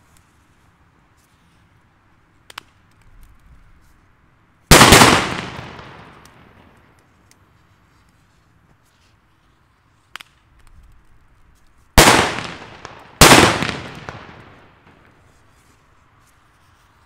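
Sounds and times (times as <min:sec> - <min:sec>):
firecracker bangs with echo: 0:04.7 - 0:06.7, 0:12.0 - 0:15.2.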